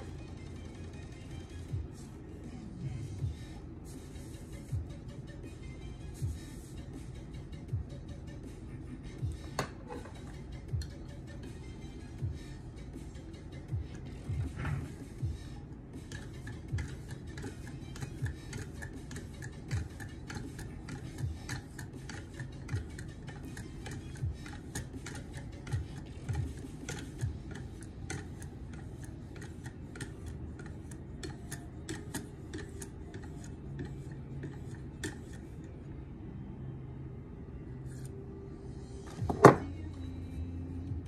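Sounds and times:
sharpening stone scraping knife edge: 0:26.8 - 0:35.5.

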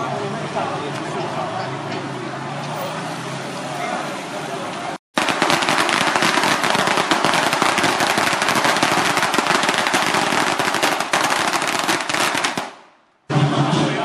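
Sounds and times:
firecrackers going off: 0:05.1 - 0:13.9.

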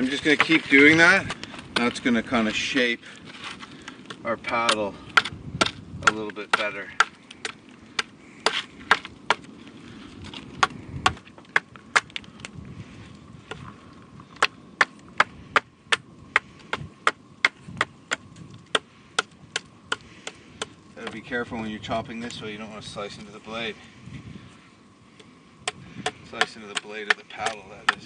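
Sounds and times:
knife chopping wood: 0:04.6 - 0:09.5, 0:25.7 - 0:28.0.

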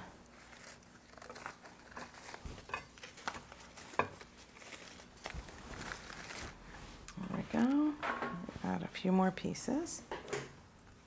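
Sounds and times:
foliage rustling: 0:00.4 - 0:07.6.

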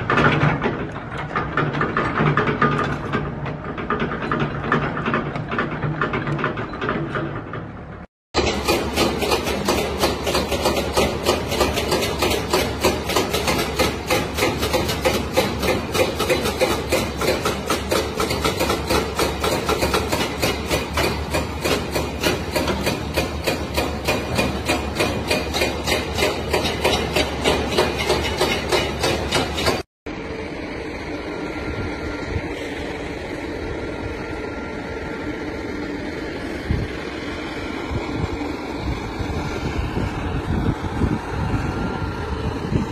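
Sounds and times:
hydraulic breaker hammering rock: 0:00.0 - 0:07.7, 0:08.4 - 0:29.9
excavator engine hum: 0:00.0 - 0:42.9.

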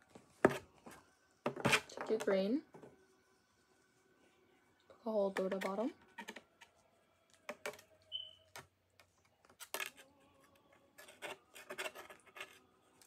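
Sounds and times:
pipe cleaners rubbing and scraping: 0:11.0 - 0:12.7.

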